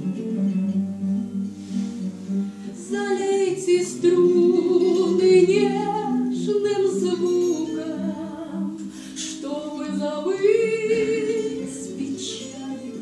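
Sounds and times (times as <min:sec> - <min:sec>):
woman singing long notes: 0:02.8 - 0:13.0.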